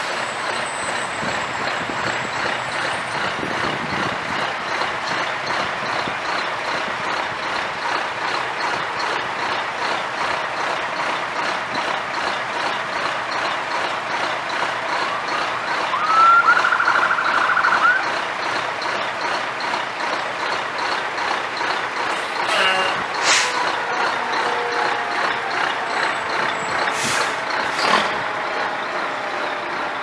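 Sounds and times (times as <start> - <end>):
fire engine engines running: 0.0 - 30.0
warbling siren burst: 15.0 - 18.1
air brakes hissing: 22.1 - 23.7, 26.9 - 28.0.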